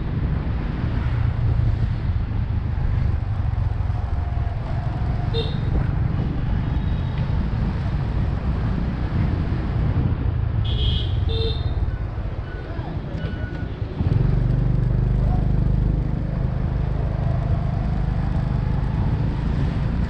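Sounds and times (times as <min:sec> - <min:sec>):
wind buffeting microphone: 0:00.0 - 0:10.6.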